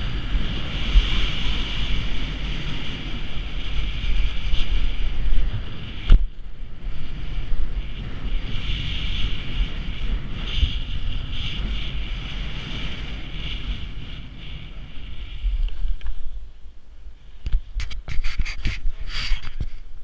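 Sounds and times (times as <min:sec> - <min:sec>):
wind buffeting microphone: 0:00.0 - 0:20.0
edges scraping on packed snow: 0:17.8 - 0:19.8.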